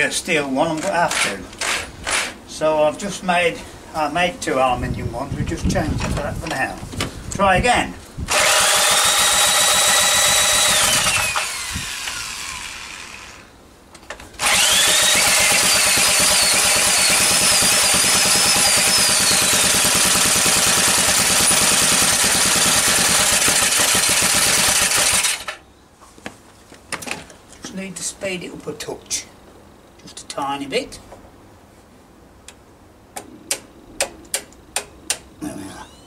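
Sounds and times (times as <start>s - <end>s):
electric drill whining: 8.3s - 13.5s, 14.4s - 25.6s.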